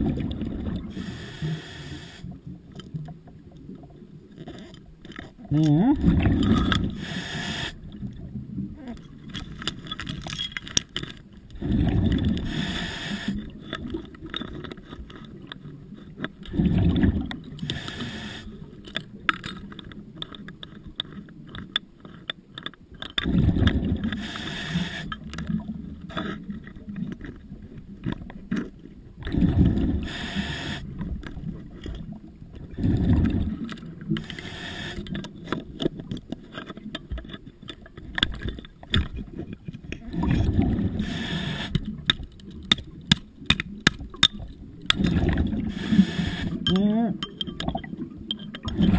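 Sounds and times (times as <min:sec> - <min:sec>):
underwater exhaled bubbles rushing: 0:00.0 - 0:01.6, 0:05.8 - 0:09.3, 0:11.5 - 0:14.3, 0:16.4 - 0:18.6, 0:23.2 - 0:26.1, 0:29.2 - 0:35.2, 0:39.0 - 0:42.3, 0:44.0 - 0:46.7, 0:47.6 - 0:48.9
small clicks and knocks: 0:02.7 - 0:05.8, 0:08.9 - 0:11.6, 0:13.5 - 0:16.6, 0:18.8 - 0:23.3, 0:33.6 - 0:40.0, 0:41.7 - 0:45.4, 0:46.6 - 0:48.9.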